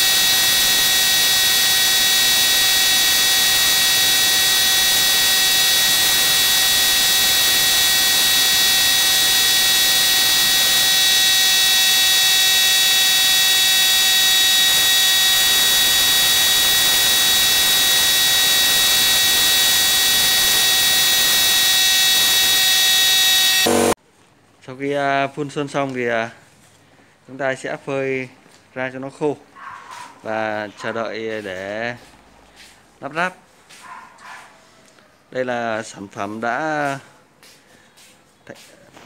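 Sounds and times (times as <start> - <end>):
air compressor whine: 0.0 - 24.0.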